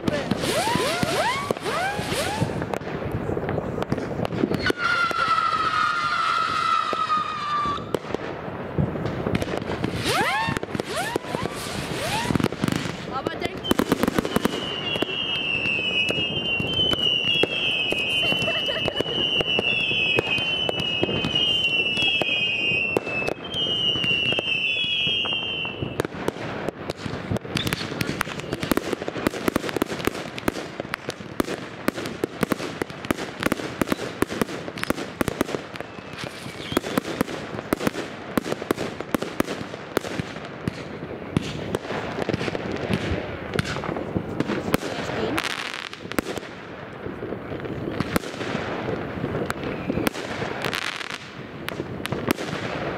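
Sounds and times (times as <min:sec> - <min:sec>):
fireworks bangs and crackling: 0:00.0 - 0:52.9
firework high whistle: 0:00.1 - 0:02.7, 0:04.3 - 0:08.1, 0:09.8 - 0:26.1, 0:27.5 - 0:28.8, 0:33.8 - 0:37.9, 0:49.5 - 0:51.2.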